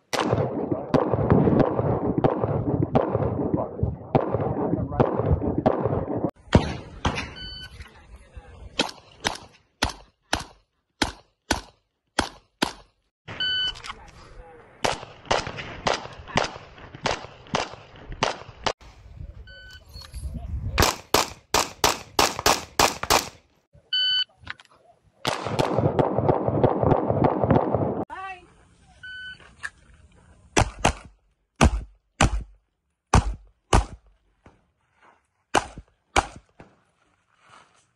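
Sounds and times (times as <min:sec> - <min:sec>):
pistol shots: 0:14.8 - 0:18.7, 0:20.8 - 0:23.4.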